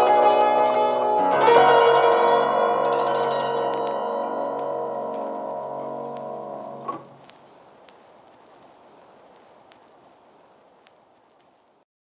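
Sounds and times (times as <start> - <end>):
instrumental music with sustained notes: 0.0 - 7.2.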